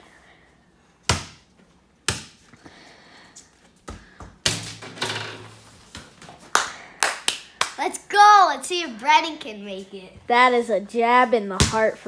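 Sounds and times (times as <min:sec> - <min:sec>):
ball bouncing thuds: 0:01.1 - 0:01.4, 0:02.1 - 0:02.4, 0:03.8 - 0:06.2, 0:11.6 - 0:11.9
clatter of ball and hoop: 0:04.2 - 0:06.0.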